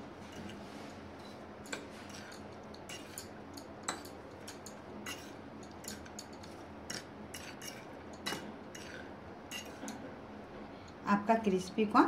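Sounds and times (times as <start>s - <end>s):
fork scraping ceramic plate: 1.2s - 3.3s, 3.9s - 10.0s.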